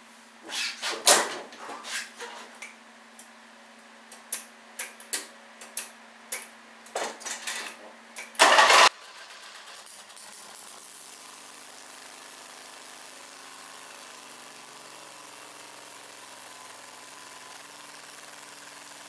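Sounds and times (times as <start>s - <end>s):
mower engine starting and running: 7.0s - 19.0s.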